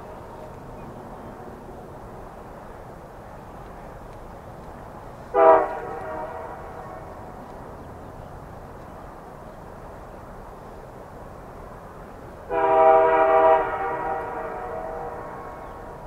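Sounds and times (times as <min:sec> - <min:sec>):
train horn blast: 0:05.3 - 0:07.4, 0:12.5 - 0:16.0.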